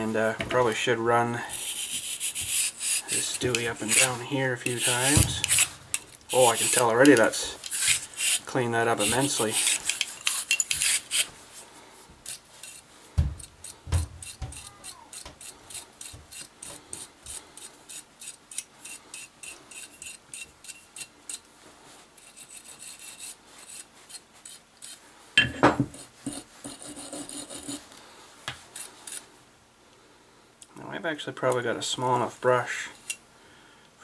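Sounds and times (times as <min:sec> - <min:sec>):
bore brush scraping metal: 0:00.7 - 0:11.4.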